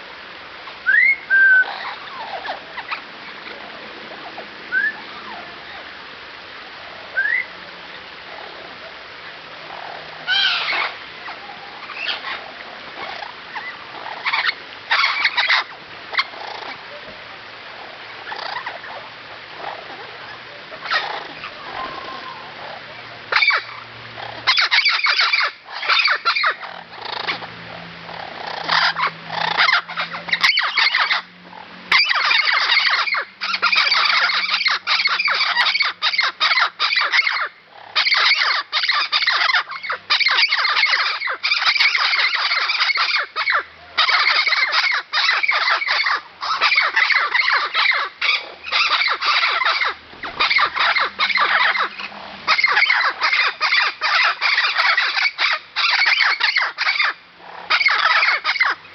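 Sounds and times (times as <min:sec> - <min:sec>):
parrots calling loudly: 0:00.9 - 0:06.0, 0:07.1 - 0:07.5, 0:09.5 - 0:17.1, 0:17.8 - 0:58.9.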